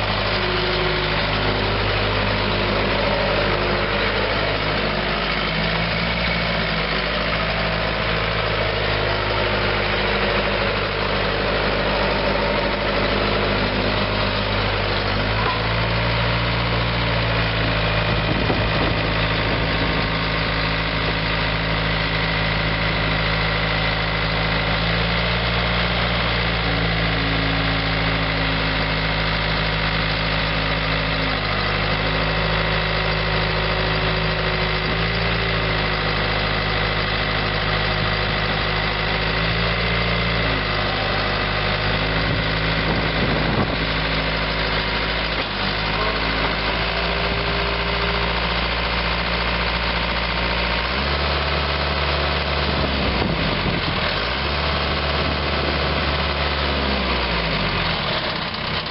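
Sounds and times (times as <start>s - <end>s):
diesel engine running: 0.0s - 58.9s.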